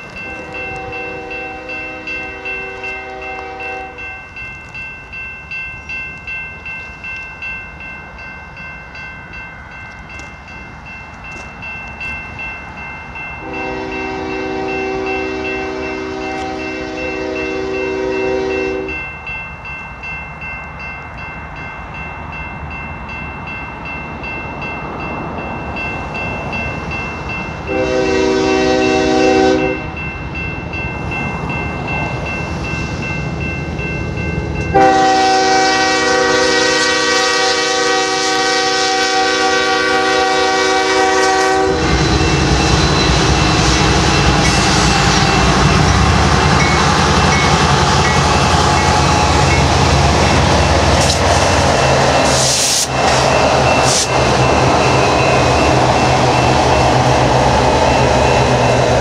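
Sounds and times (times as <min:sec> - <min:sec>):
crossing bell ringing: 0:00.0 - 0:59.0
train rumble: 0:00.0 - 0:59.0
train horn blasts: 0:00.2 - 0:04.1, 0:13.4 - 0:19.0, 0:27.7 - 0:29.9, 0:34.7 - 0:46.1.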